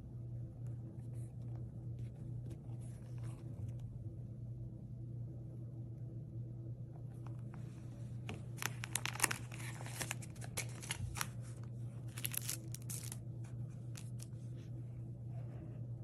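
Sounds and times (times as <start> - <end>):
steady low hum: 0.0 - 16.0
plastic packaging crinkling: 8.4 - 13.2, 13.8 - 14.3.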